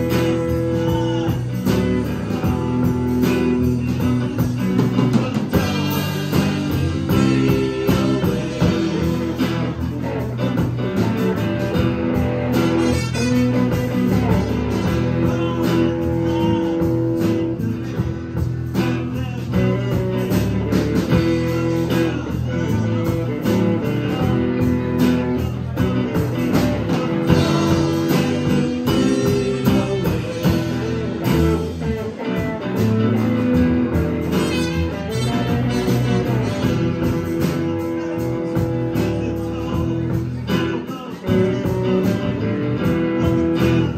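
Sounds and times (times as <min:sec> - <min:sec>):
bass guitar: 0:00.0 - 0:43.9
drums: 0:00.0 - 0:43.9
electric guitars: 0:00.0 - 0:43.9
trumpet long held notes: 0:12.8 - 0:13.7.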